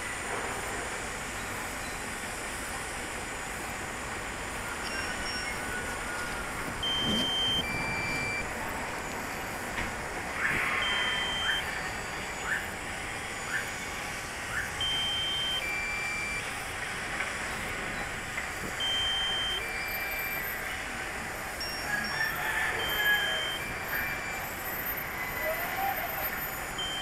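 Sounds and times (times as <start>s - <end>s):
two-pitch electronic beeps: 4.8s - 8.5s, 10.4s - 16.5s, 17.9s - 20.9s, 21.6s - 27.0s
short rising chirps: 10.4s - 16.4s.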